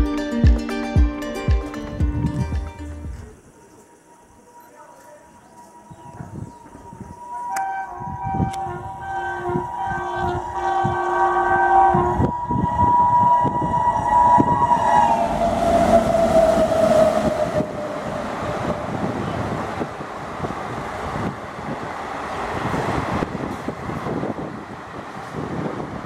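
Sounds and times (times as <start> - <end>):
locomotive horn: 4.2 - 18.0.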